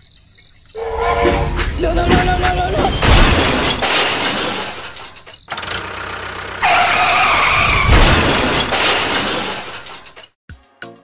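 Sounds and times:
crash and shattering smash: 1.7 - 5.2, 7.6 - 10.3.

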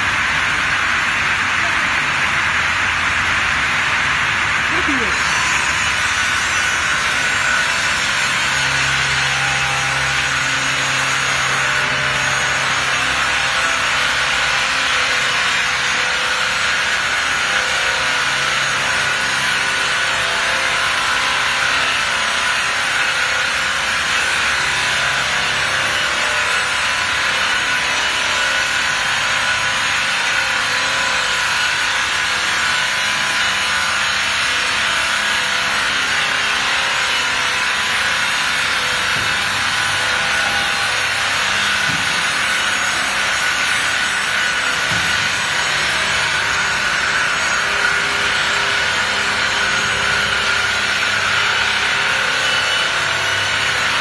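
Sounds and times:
circular saw cutting log: 0.0 - 54.0.

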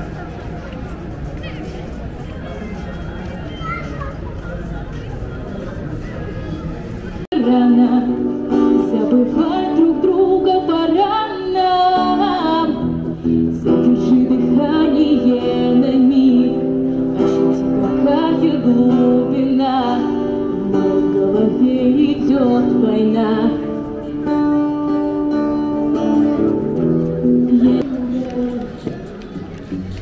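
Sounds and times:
woman singing through microphone: 7.3 - 24.0, 27.1 - 29.0
acoustic guitar: 7.3 - 30.0.

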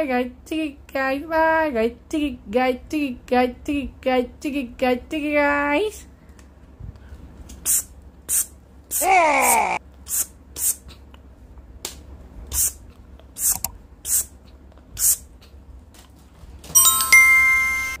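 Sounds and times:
short high hisses: 7.6 - 9.0
notification bell chime: 16.8 - 18.0.

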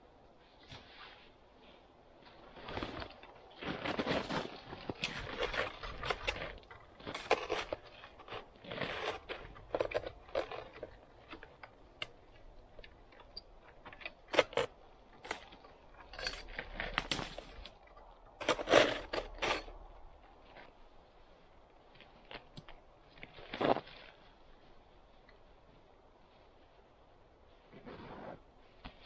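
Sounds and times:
clothing rustling: 0.4 - 11.3
snow crunching: 0.4 - 13.1, 13.7 - 29.0.

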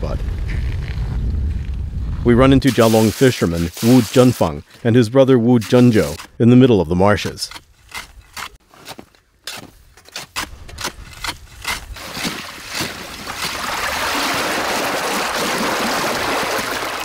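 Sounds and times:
water churning and splashing: 2.7 - 4.6, 11.6 - 17.0
pole striking ice: 7.5 - 13.6.

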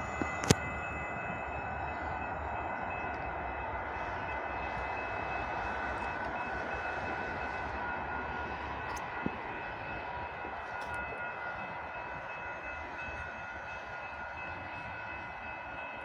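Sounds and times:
distant road traffic: 0.0 - 16.0.

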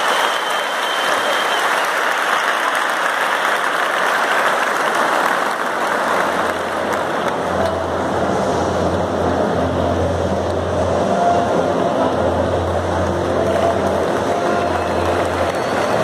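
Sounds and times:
crowd applauding and cheering: 0.0 - 9.1, 12.4 - 16.0.

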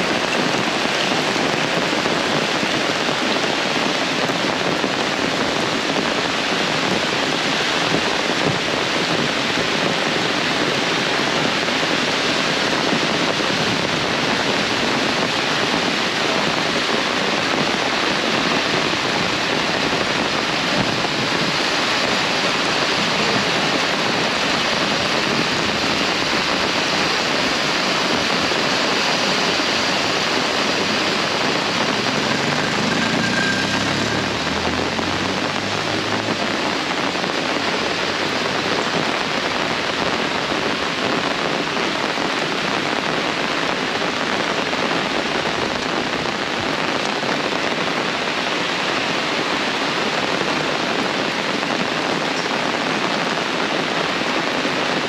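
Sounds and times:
heavy rain pouring: 0.0 - 55.0
vehicle engine hum: 28.9 - 38.7.

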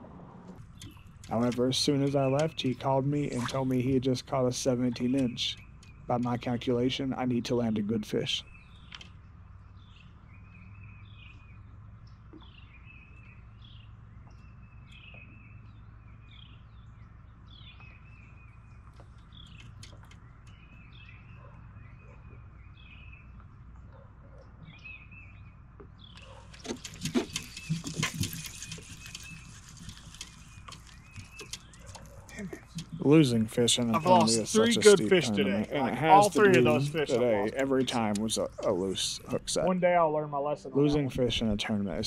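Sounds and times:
songbird chirping: 0.6 - 42.0
loud rustling with clicks: 26.1 - 33.1.

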